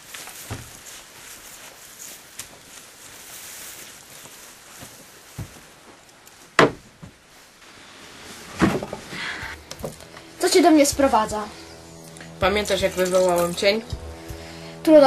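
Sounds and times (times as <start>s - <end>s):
rustling: 0.0s - 14.6s
faint background hiss: 0.0s - 15.0s
knocks and thumps: 6.6s - 7.2s, 8.6s - 9.0s.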